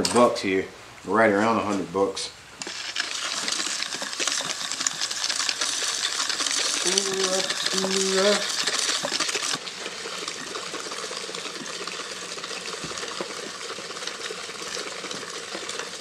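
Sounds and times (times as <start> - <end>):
fishing reel whirring and ticking: 2.6 - 16.0
spool rattling in box: 2.6 - 16.0.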